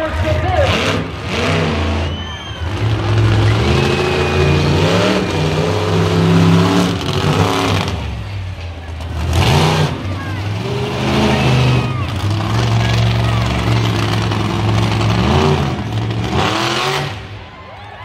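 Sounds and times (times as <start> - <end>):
monster truck engine revving: 0.0 - 18.0.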